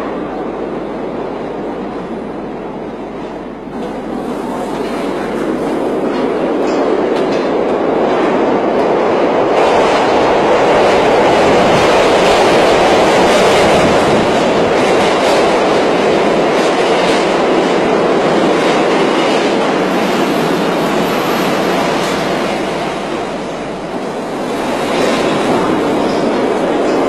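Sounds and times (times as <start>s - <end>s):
subway train rumbling on rails: 0.0s - 27.0s.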